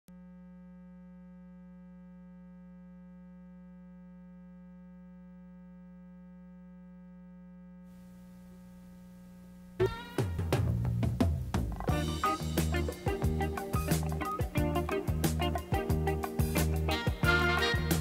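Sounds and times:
buzzy mains hum: 0.2 - 18.0
faint tape hiss: 7.8 - 18.0
music with loud hit: 9.8 - 18.0.

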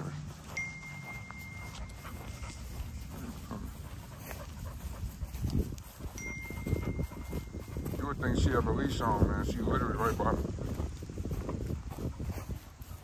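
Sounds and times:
dog panting: 0.0 - 13.0
wind and handling rumble: 0.0 - 13.0
thin high tone: 0.4 - 3.4, 6.0 - 8.0.

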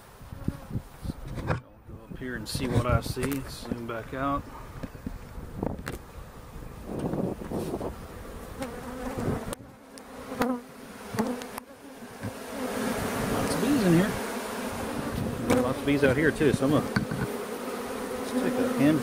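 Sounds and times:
honeybees buzzing: 2.0 - 19.0.

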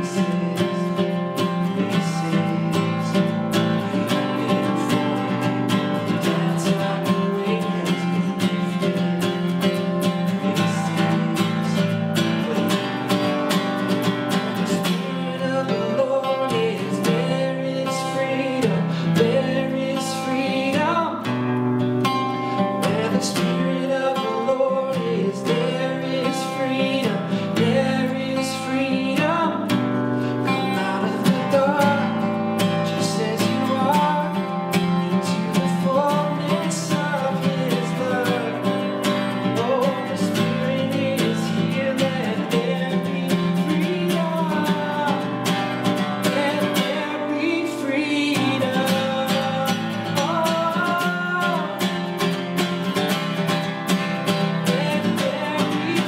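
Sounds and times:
man singing worship song: 0.0 - 13.2, 14.5 - 21.3, 22.6 - 52.0, 54.5 - 56.0
acoustic guitar strumming: 0.0 - 56.0.

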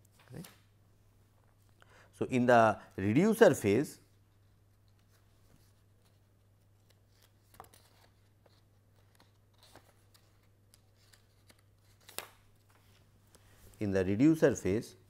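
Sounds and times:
paper rustling: 4.4 - 13.1.

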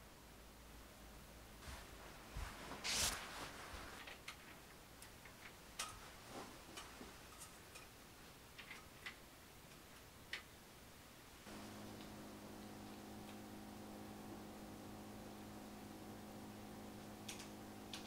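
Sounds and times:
soft footsteps: 1.6 - 4.1
small clicks and taps: 17.2 - 18.0.

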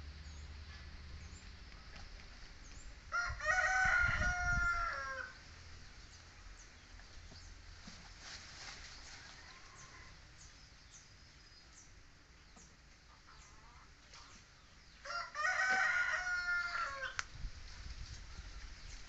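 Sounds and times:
small birds chirping: 0.2 - 3.1, 5.8 - 7.9, 8.8 - 15.1, 17.9 - 19.0
rooster crowing: 3.1 - 5.4, 15.0 - 17.2.

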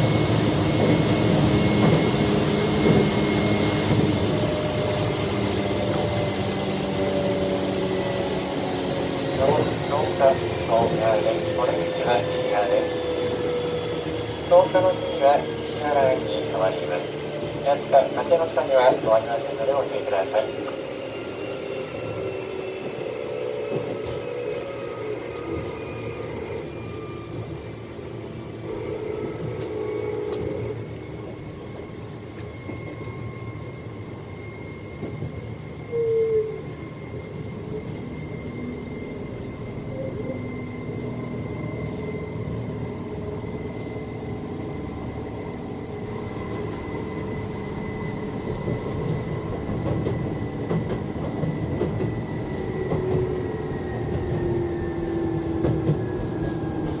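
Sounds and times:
brief loud tone: 35.8 - 36.7.

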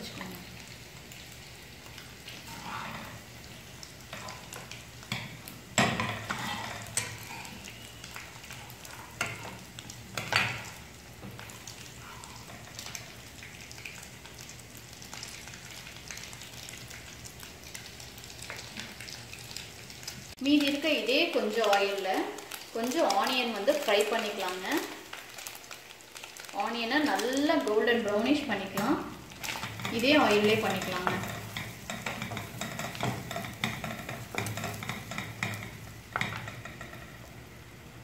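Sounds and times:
egg sizzling in hot oil: 0.0 - 38.0
spatula scraping and knocking pan: 2.4 - 3.3, 4.1 - 7.5, 29.5 - 37.3.

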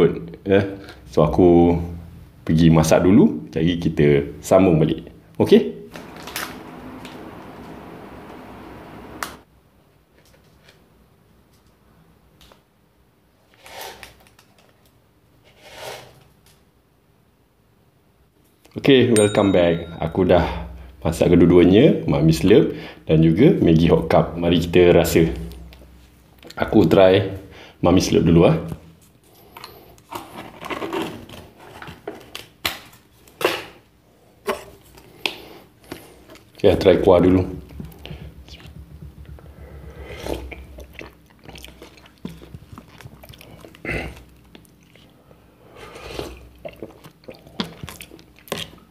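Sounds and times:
knocks on wooden board: 37.6 - 39.7.

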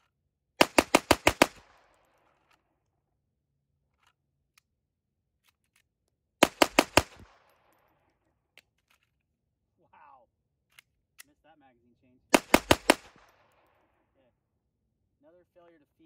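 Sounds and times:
pistol shots: 0.6 - 2.6, 6.4 - 8.0, 12.3 - 14.0.

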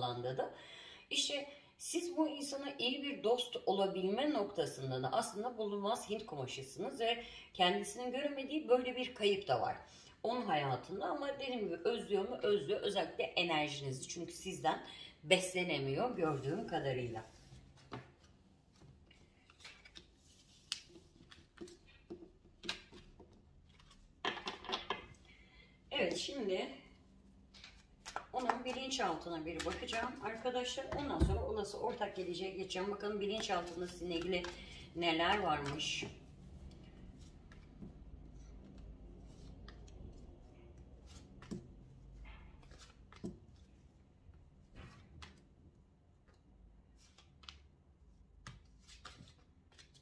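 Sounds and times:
cards clicking and tapping: 19.5 - 25.2, 27.5 - 30.2.

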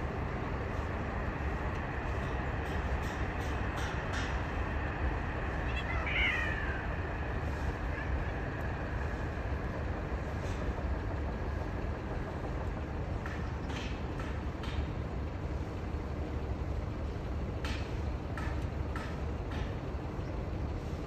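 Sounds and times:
low background rumble: 0.0 - 21.0
cat yowling: 5.7 - 6.9.

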